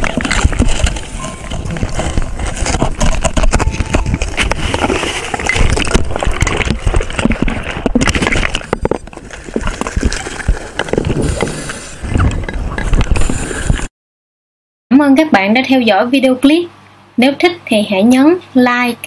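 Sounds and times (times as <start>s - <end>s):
knocks and rattles: 0.0s - 13.4s
gurgling exhaust bubbles: 0.0s - 13.9s
heavy breathing through a regulator: 11.0s - 13.9s.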